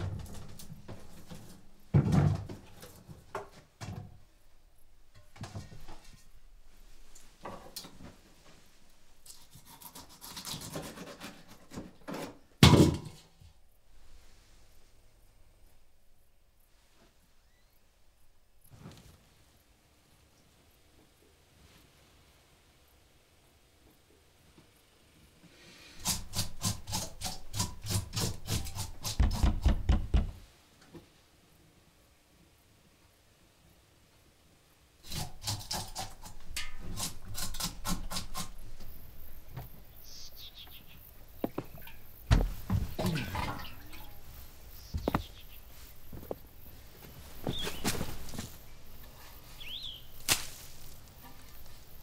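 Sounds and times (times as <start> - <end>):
scratchy rubbing strokes: 8.6 - 11.7
dull wooden thump: 29.2 - 30.4, 42.3 - 43.2.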